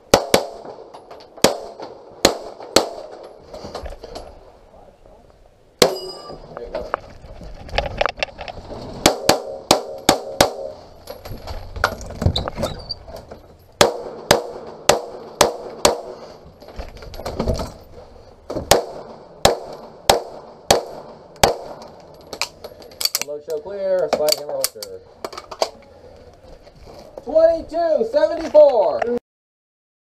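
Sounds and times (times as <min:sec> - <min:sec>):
pistol shots: 0:00.1 - 0:03.2, 0:09.0 - 0:10.8, 0:13.8 - 0:16.2, 0:18.6 - 0:23.2.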